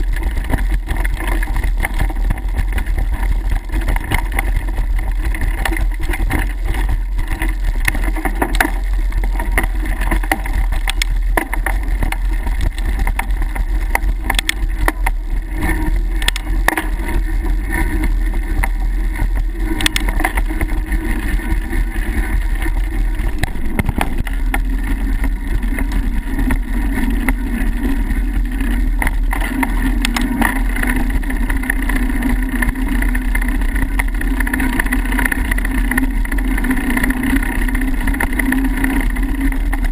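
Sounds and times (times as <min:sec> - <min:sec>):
bike rattling over bumps: 0:00.0 - 0:39.9
wind rumble on microphone: 0:00.0 - 0:39.9.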